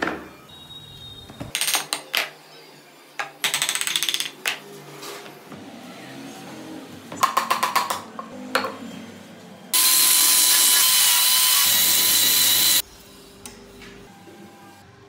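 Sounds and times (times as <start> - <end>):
angle grinder sanding wood: 9.8 - 12.8.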